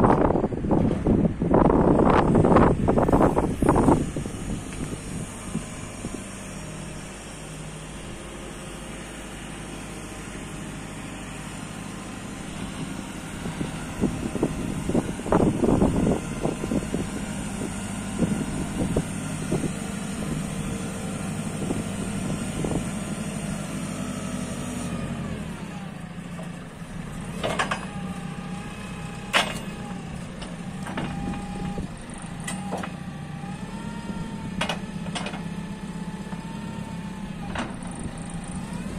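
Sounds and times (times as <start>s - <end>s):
diesel engine running: 0.0s - 38.9s
boom clunks and rattles: 27.3s - 28.0s, 37.4s - 38.1s.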